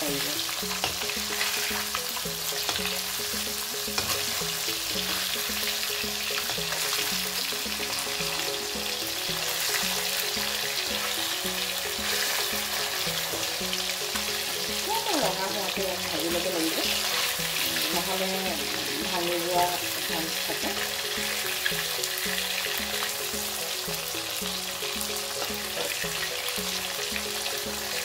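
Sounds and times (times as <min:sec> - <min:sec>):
fish sizzling in hot oil: 0:00.0 - 0:28.0
repeating background tune: 0:00.0 - 0:28.0
metal spatula stirring in pan: 0:00.4 - 0:08.4.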